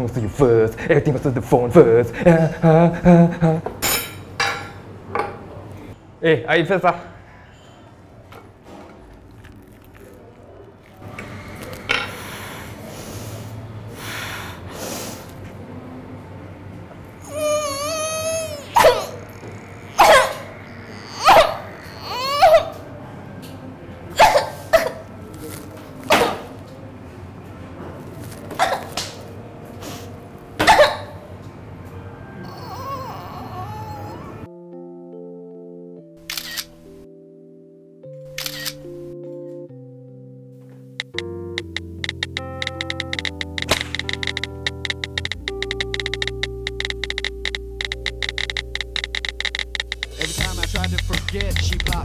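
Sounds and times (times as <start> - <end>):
woman sobbing: 2.2 - 3.7
noisy eating: 8.5 - 13.3, 17.2 - 23.4, 41.0 - 52.0
sharp snorting sniffs: 12.1 - 15.4, 29.8 - 30.2
fork clicking against a plate: 41.0 - 52.0.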